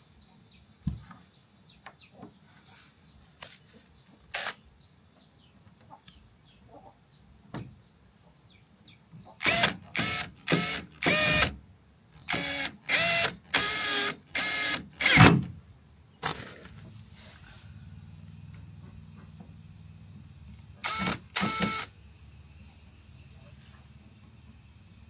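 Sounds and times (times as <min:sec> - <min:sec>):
cordless drill motor whining: 0:04.3 - 0:04.6, 0:09.4 - 0:11.6, 0:12.3 - 0:15.4, 0:20.8 - 0:21.9.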